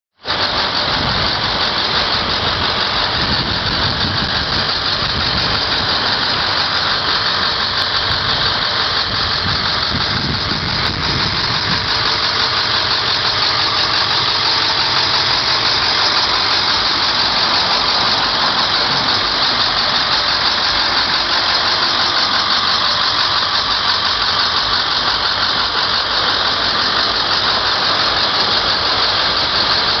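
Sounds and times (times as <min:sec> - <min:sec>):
bus engine idling: 0:00.2 - 0:30.0
loud even hiss: 0:00.2 - 0:30.0.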